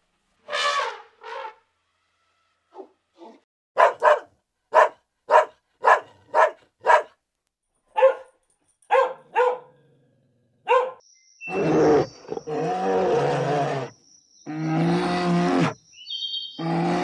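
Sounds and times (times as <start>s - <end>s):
dog barking: 3.8s - 7.2s, 7.9s - 9.8s, 10.6s - 11.0s.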